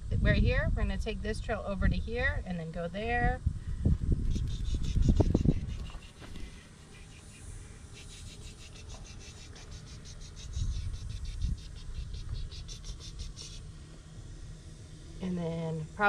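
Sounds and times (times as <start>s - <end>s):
low uneven rumble: 0.0s - 16.0s
insect chirping: 4.2s - 16.0s.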